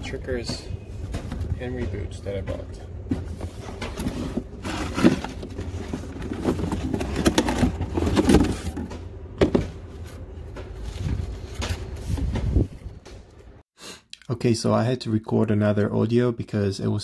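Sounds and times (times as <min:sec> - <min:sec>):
cardboard box scraping and rustling: 0:03.2 - 0:12.3
wind buffeting microphone: 0:12.2 - 0:13.0.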